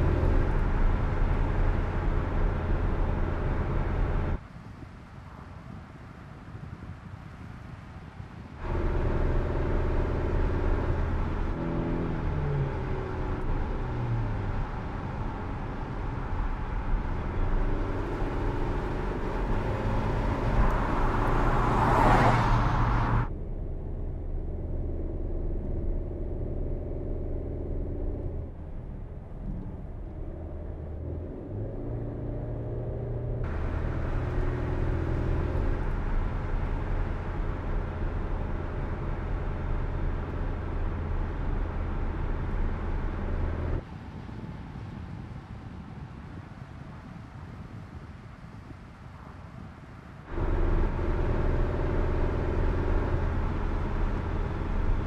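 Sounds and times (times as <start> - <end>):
car engine running: 0.0 - 4.4, 8.6 - 31.1, 33.2 - 43.8, 50.3 - 55.0
wind noise: 0.0 - 11.6, 33.4 - 55.0.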